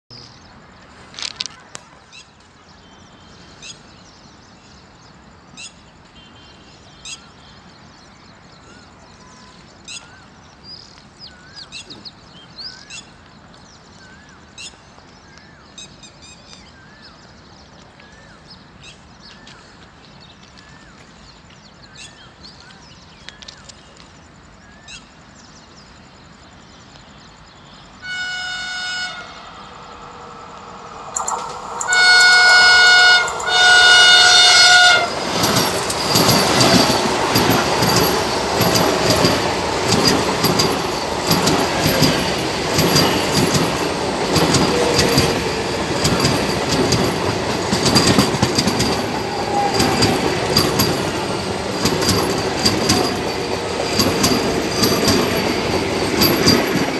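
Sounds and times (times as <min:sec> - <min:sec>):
wheels rushing on rail: 0:26.2 - 0:56.9
train horn blasts: 0:28.0 - 0:35.7
wheels clattering over rail joints: 0:33.2 - 0:56.9.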